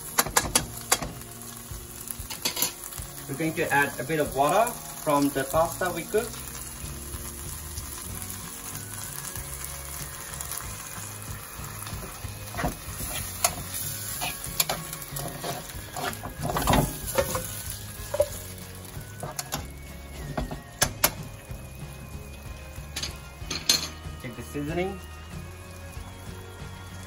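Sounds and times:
pasta sizzling in a frying pan: 0.0 - 27.0
metal utensil scraping a pan: 2.2 - 3.6, 11.8 - 21.2.

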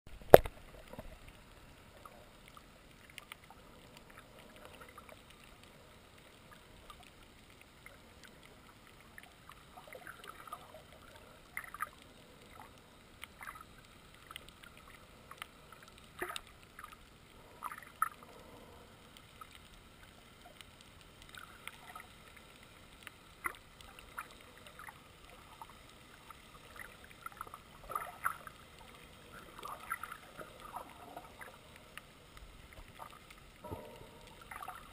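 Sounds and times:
muffled underwater hiss: 0.1 - 34.9
underwater clicks and gurgles: 0.1 - 34.9.

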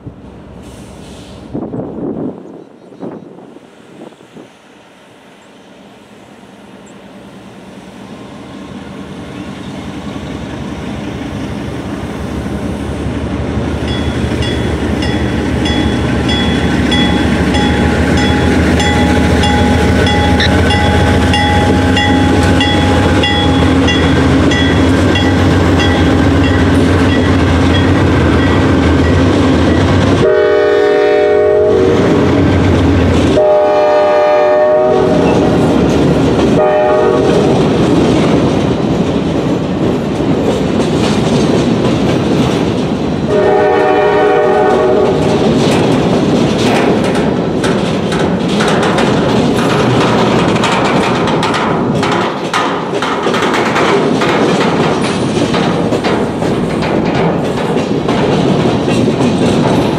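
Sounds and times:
diesel locomotive engine rumble: 0.0 - 59.9
locomotive bell ringing: 13.8 - 30.0
train air horn blasts: 30.2 - 32.3, 33.3 - 35.5, 36.5 - 37.6, 43.3 - 45.4.

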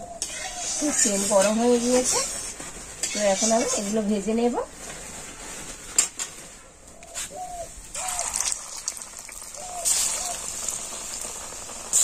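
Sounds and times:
pakoras deep-frying in oil: 7.9 - 12.0
bird calls: 9.5 - 10.5.

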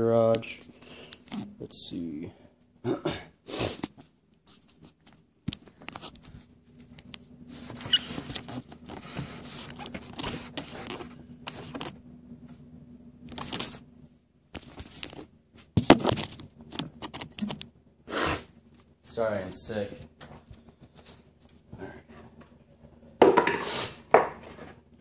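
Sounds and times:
faint low hum: 0.0 - 23.2
rustling and scraping of objects: 3.6 - 12.7, 13.3 - 13.9, 14.5 - 17.6, 18.6 - 25.0.

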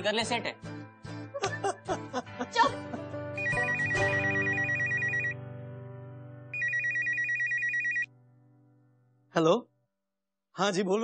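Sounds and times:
telephone ringing with warbling trill: 3.4 - 5.4, 6.6 - 8.1.

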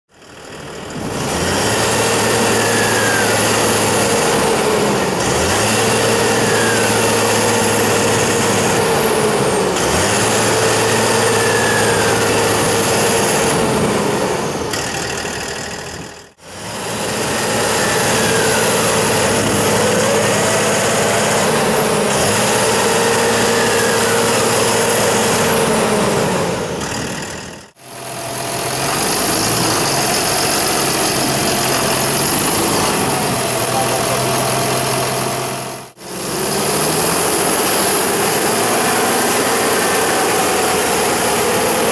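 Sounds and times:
tractor diesel engine: 0.1 - 41.9
high whines: 1.8 - 15.2, 16.7 - 26.9, 36.0 - 41.9.

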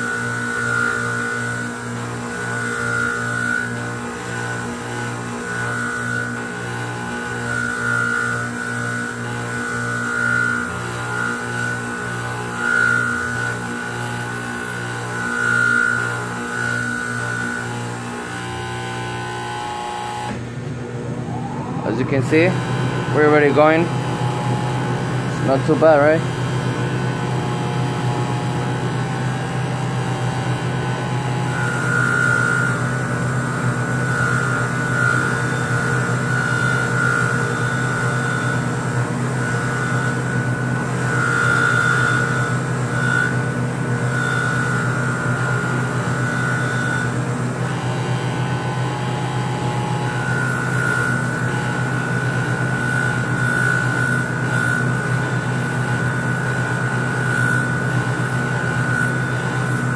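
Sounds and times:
bench grinder motor humming: 0.0 - 59.9
wire wheel high whine: 0.0 - 59.9.

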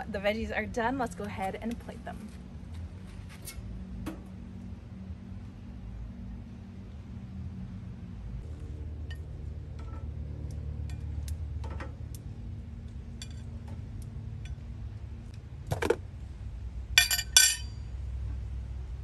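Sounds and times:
steady low hum: 0.0 - 19.0
metal fork clinking on a plate: 17.0 - 17.7.

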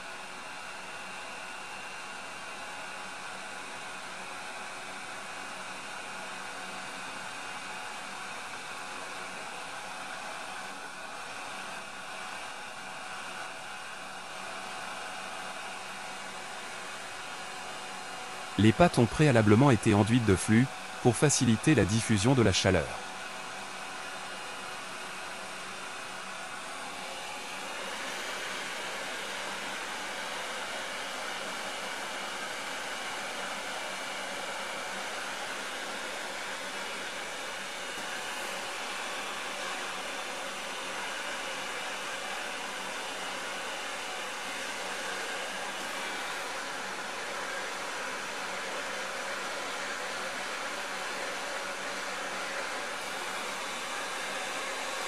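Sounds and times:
hot air blower hissing: 15.8 - 55.0.

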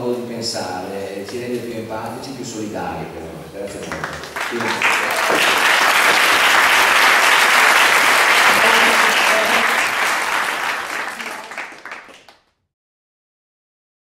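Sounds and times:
audience applauding: 3.7 - 12.5.

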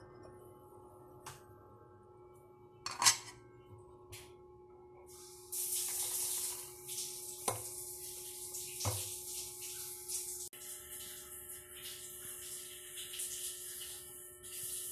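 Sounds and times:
cookware clinking: 2.9 - 3.4.

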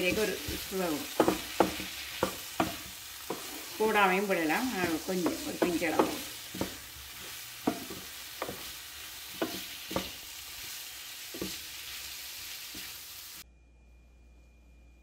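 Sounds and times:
spatula knocking against pan: 0.0 - 3.6, 4.6 - 10.2
food sizzling in frying pan: 0.0 - 13.4.

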